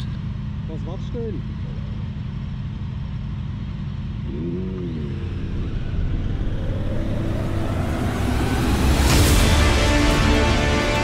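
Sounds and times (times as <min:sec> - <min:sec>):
motorcycle engine: 0:00.0 - 0:11.0
road noise: 0:00.0 - 0:11.0.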